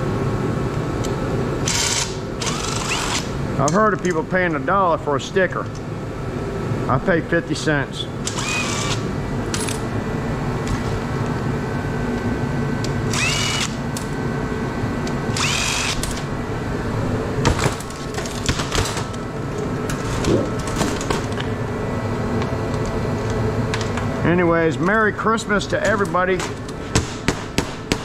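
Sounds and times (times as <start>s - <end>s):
steady background hum: 0.0s - 28.0s
small power tool spinning up: 1.7s - 3.3s, 8.3s - 9.0s, 13.1s - 13.8s, 15.3s - 16.0s.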